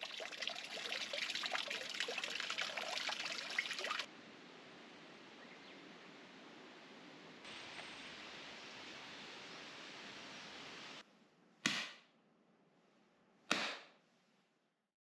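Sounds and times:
water trickling and splashing: 0.0s - 4.1s
faint outdoor hiss: 0.0s - 11.6s.

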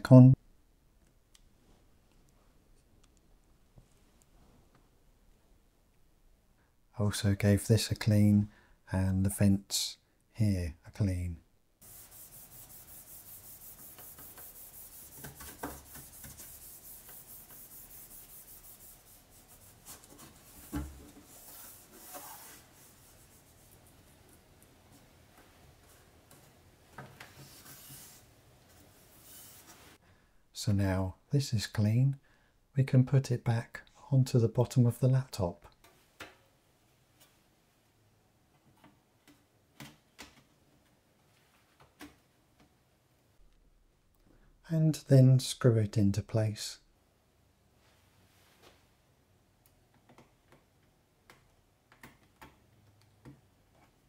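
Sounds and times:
cloth rubbing on metal: 11.8s - 24.3s, 27.3s - 30.0s.

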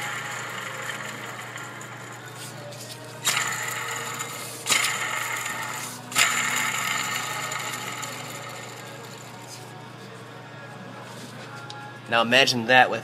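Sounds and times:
pulley bearing grinding whirr: 0.0s - 9.7s.

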